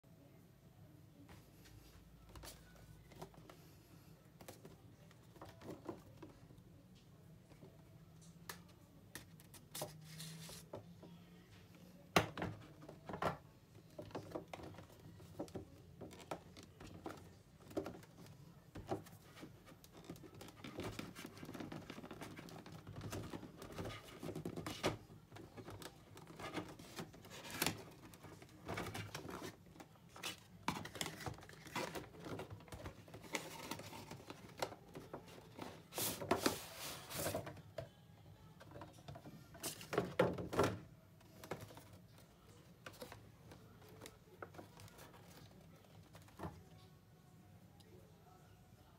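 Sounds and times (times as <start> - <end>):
cardboard scrapes and rustles: 35.6 - 37.4.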